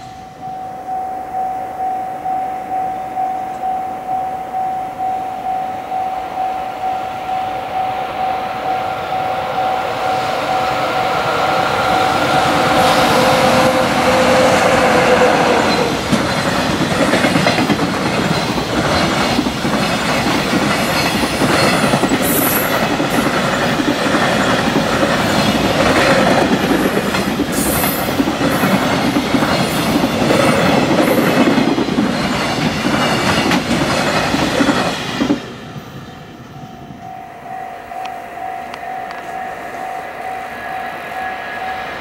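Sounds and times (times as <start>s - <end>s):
train wheels rumbling on rail: 6.6s - 42.0s
clickety-clack over rail joints: 11.7s - 36.0s.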